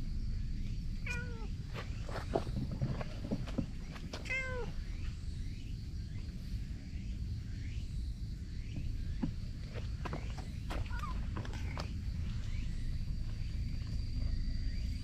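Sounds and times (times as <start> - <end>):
low steady rumble: 0.0 - 15.0
cat meowing: 1.0 - 1.5, 4.2 - 4.8.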